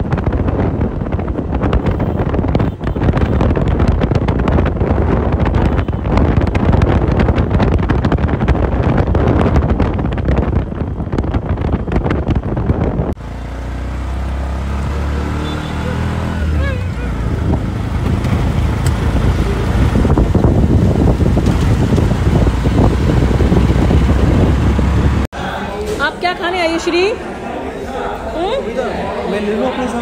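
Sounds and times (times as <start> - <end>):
wind buffeting microphone: 0.0 - 13.2, 16.4 - 25.3
road and engine noise: 0.0 - 30.0
low engine hum: 9.0 - 25.3.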